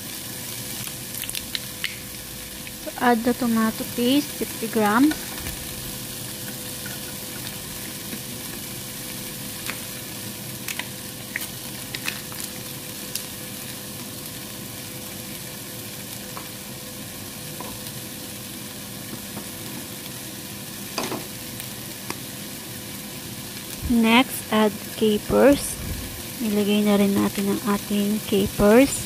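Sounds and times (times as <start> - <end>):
vegetables sizzling in oil: 0.0 - 29.0
faint hum: 23.7 - 29.0.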